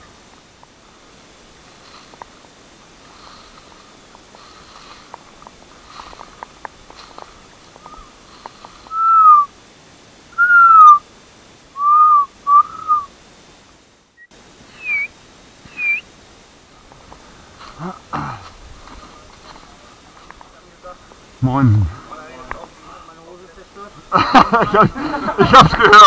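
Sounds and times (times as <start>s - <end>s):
person whistling signal calls: 8.9s - 9.5s, 10.4s - 11.0s, 11.8s - 13.1s, 14.2s - 15.1s, 15.7s - 16.0s.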